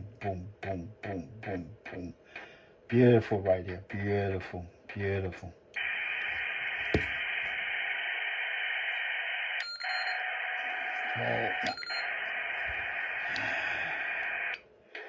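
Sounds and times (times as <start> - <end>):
radio receiver static hiss: 5.0 - 15.0
faint steady tone: 5.7 - 14.6
radio switch click: 5.8 - 7.6
short beeps: 9.6 - 12.2.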